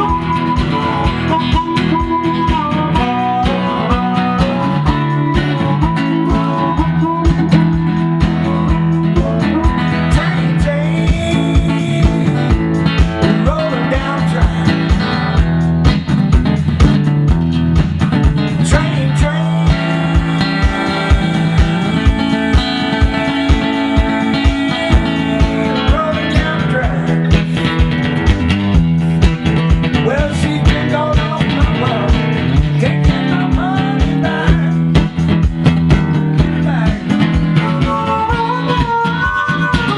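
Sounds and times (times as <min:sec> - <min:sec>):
harmonica wailing: 0:00.0 - 0:15.6, 0:18.7 - 0:27.6, 0:37.2 - 0:39.9
blues guitar playing: 0:00.0 - 0:39.9.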